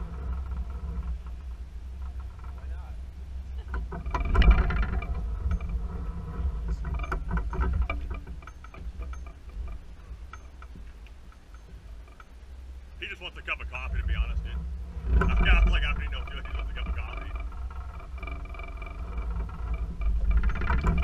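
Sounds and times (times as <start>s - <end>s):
boat motor running: 0.0s - 21.0s
knocks and clatter: 3.6s - 12.4s, 13.5s - 21.0s.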